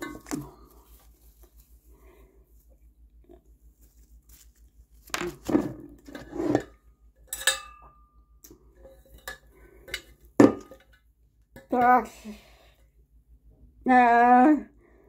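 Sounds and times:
plate rustling and knocking: 0:00.0 - 0:01.1, 0:05.0 - 0:07.8, 0:08.8 - 0:11.0
enamel plate clinking and ringing: 0:07.3 - 0:08.3.

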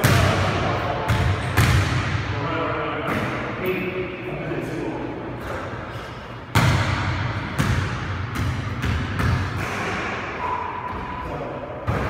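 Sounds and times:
basketball bouncing on wooden floor: 0:06.5 - 0:09.6.

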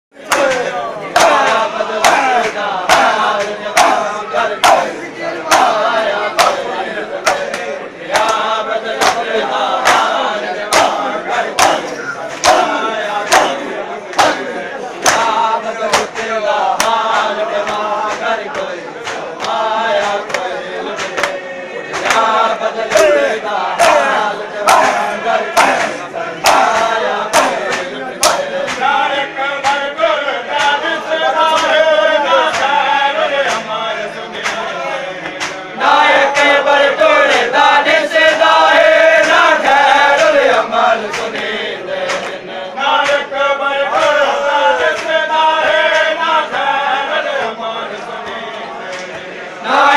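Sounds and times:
men chanting in unison: 0:00.2 - 0:49.9
hands slapping chests: 0:00.3 - 0:11.0, 0:11.6 - 0:23.2, 0:23.8 - 0:28.9, 0:34.4 - 0:35.6, 0:41.0 - 0:42.4, 0:48.2 - 0:49.3.

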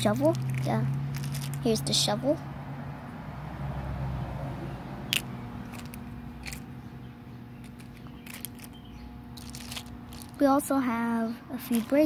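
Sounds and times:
steady low hum: 0:04.7 - 0:12.0
plastic toy pieces clicking: 0:05.1 - 0:06.6, 0:07.6 - 0:08.8, 0:09.4 - 0:10.4, 0:11.7 - 0:12.0.

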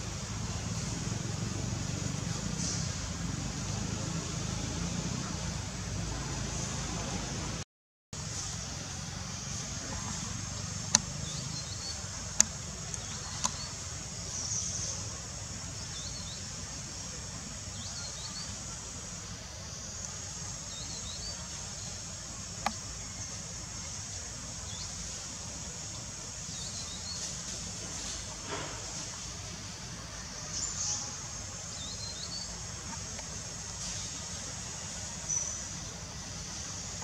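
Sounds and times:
high insect drone: 0:08.2 - 0:37.0.

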